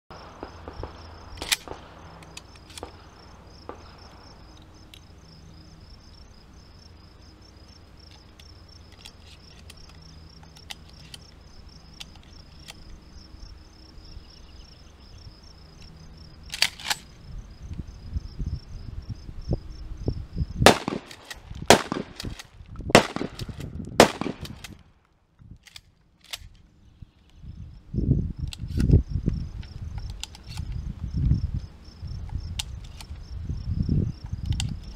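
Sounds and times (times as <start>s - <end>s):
insects trilling: 0.1s - 22.1s
shotgun being loaded clicks: 1.4s - 3.0s, 16.5s - 17.1s, 20.7s - 24.8s, 25.6s - 26.7s, 30.0s - 30.8s.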